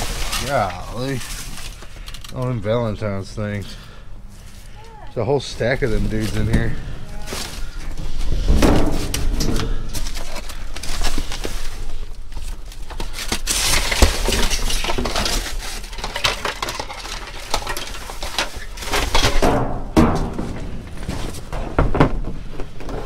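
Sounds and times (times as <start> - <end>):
rustling plastic bags and cardboard: 0.0 - 23.0
trash clinking and clattering: 5.6 - 23.0.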